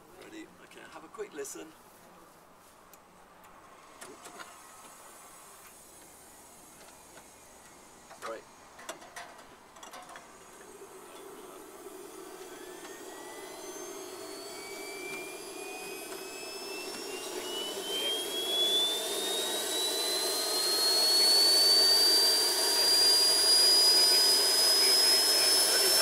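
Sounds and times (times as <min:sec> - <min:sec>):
gas turbine whine rising: 0:10.1 - 0:26.0
turbine rushing noise: 0:10.4 - 0:26.0.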